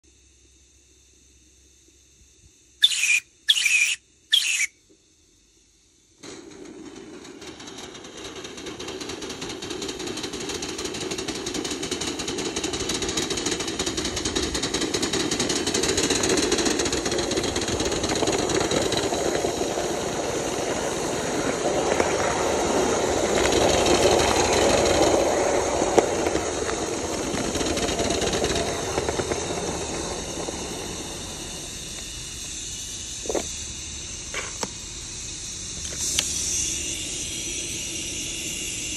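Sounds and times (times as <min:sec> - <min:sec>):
sharp clicks: 0:02.8 - 0:04.7
steam hissing: 0:02.8 - 0:04.7, 0:06.2 - 0:38.9
wheels clattering on rails: 0:06.2 - 0:31.7
steam locomotive exhaust beat: 0:06.2 - 0:38.9.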